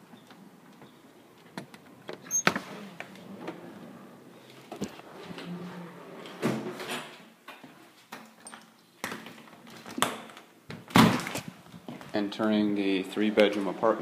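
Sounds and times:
door opening: 0:01.4 - 0:07.2.

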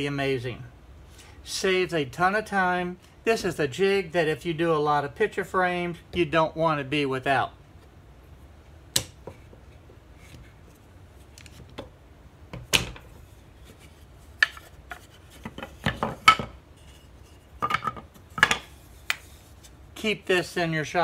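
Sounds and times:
wooden pieces knocking: 0:14.3 - 0:17.0, 0:17.6 - 0:19.3
wooden clatter: 0:14.4 - 0:17.0.

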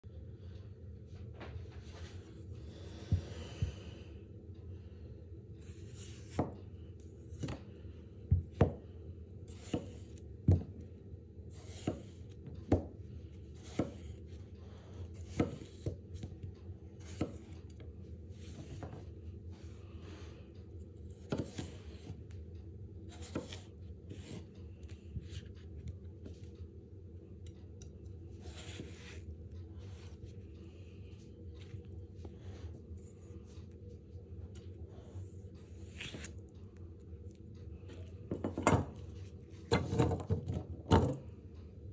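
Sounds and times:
knife slicing potato: 0:05.6 - 0:06.6, 0:07.3 - 0:07.7, 0:09.4 - 0:10.8, 0:11.5 - 0:14.3, 0:15.1 - 0:16.4, 0:17.0 - 0:17.6, 0:21.1 - 0:22.2, 0:23.1 - 0:24.6, 0:27.8 - 0:29.3, 0:35.6 - 0:36.5.

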